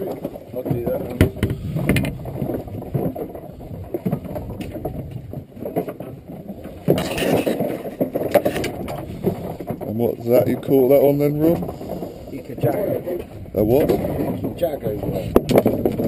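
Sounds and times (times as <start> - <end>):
boat low rumble: 0.0 - 16.0
knocks of fish handling: 0.7 - 2.2.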